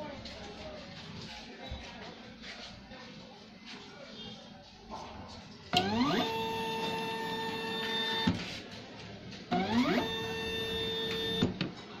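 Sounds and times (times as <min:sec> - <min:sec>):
carriage motor whine: 0:05.8 - 0:08.4, 0:09.5 - 0:11.6.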